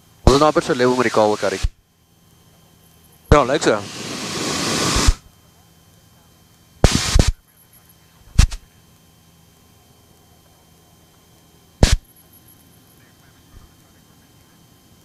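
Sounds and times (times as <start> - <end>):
loud static bursts: 0.0 - 1.8, 3.3 - 5.3, 6.8 - 7.4, 8.4 - 8.7, 11.8 - 12.0
faint engine hum: 0.0 - 15.0.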